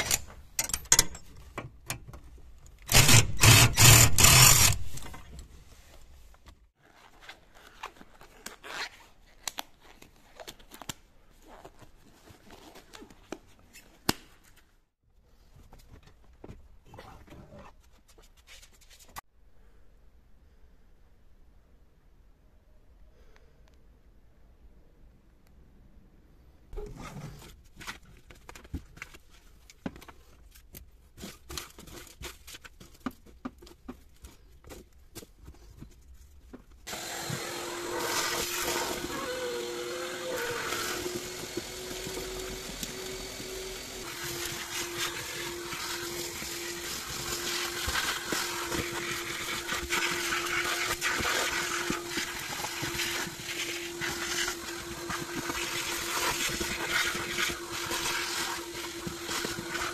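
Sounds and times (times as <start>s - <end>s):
vacuum cleaner humming: 36.9s - 59.9s.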